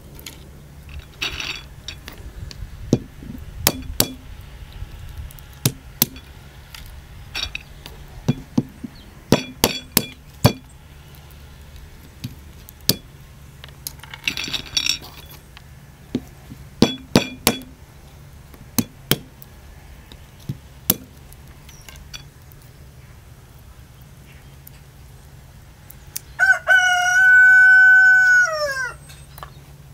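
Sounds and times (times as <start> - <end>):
stone cracking walnuts: 0.0 - 17.8, 18.4 - 22.8, 23.5 - 26.4
crackle of shell breaking: 18.8 - 22.8.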